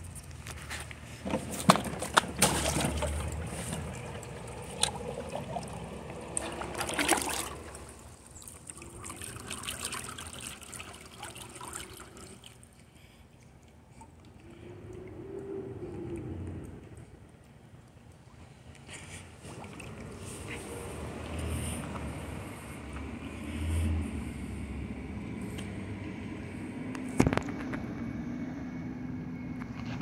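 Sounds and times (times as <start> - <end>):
pool water splashing: 0.6 - 12.9, 15.8 - 22.9.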